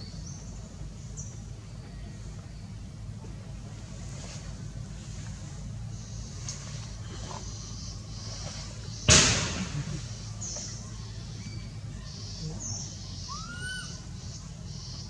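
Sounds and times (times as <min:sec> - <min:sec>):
forest background hiss: 0:00.0 - 0:15.0
sudden loud thump: 0:09.1 - 0:09.9.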